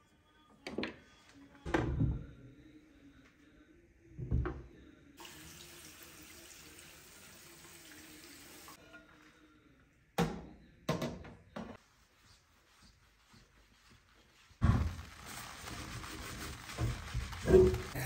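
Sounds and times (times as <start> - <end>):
tap water running into sink: 5.2 - 8.8.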